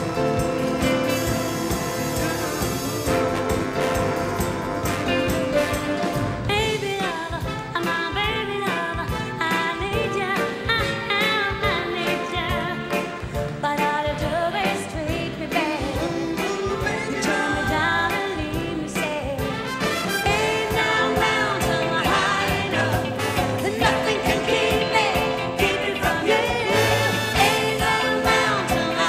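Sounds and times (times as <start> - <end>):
big band with steady beat: 0.0 - 29.0
woman singing into microphone: 6.5 - 19.5.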